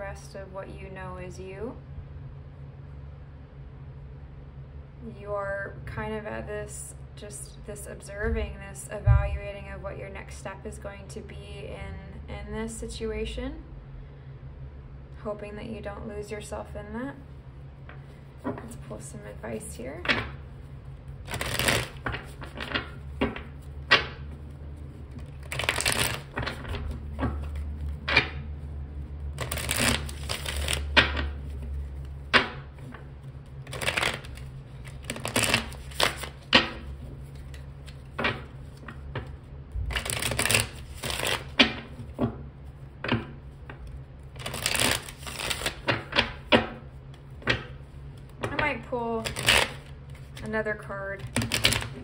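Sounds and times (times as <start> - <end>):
cards being shuffled: 17.9 - 19.1, 20.0 - 50.5, 51.2 - 52.0.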